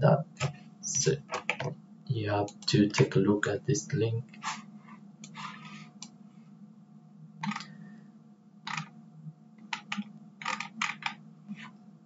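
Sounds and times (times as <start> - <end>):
low steady hum: 0.0 - 12.0
computer mouse clicks: 5.2 - 6.2, 7.4 - 7.7, 8.6 - 8.9, 9.6 - 11.7.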